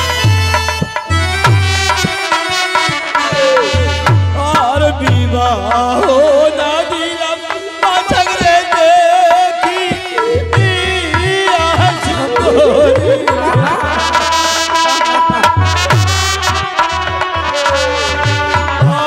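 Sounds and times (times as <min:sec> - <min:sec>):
deep drum beats: 0:00.0 - 0:19.0
person singing wavering melody: 0:02.8 - 0:19.0
instruments playing: 0:06.2 - 0:19.0.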